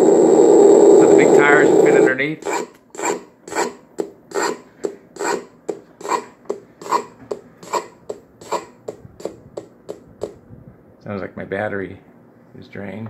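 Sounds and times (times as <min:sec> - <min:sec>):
electronic engine cranking sound: 0:00.0 - 0:02.6.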